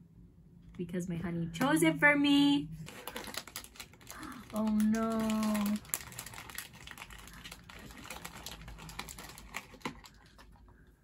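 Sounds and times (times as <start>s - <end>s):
packaging clicking and crinkling: 2.8s - 10.8s.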